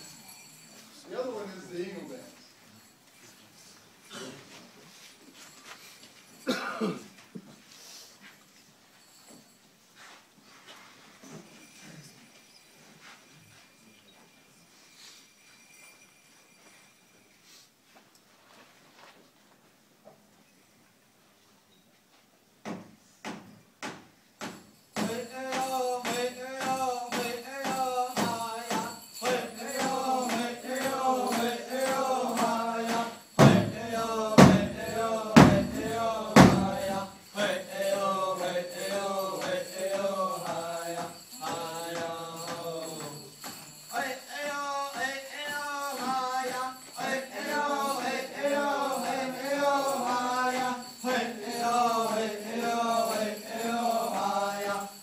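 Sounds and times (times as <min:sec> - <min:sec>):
group chanting: 0:25.0 - 0:43.3, 0:43.9 - 0:55.0
large drum beating: 0:33.4 - 0:36.9
heavy drum strikes: 0:33.4 - 0:37.0.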